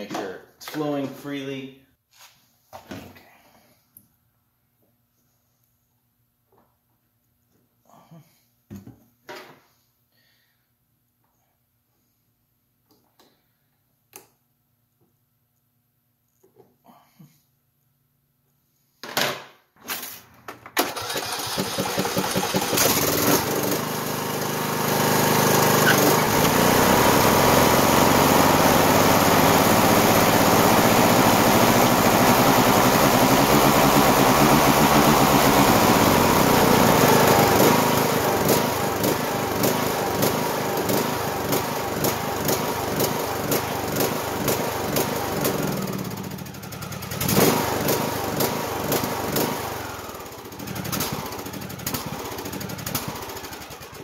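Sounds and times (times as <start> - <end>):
mower engine running: 20.8 - 54.0.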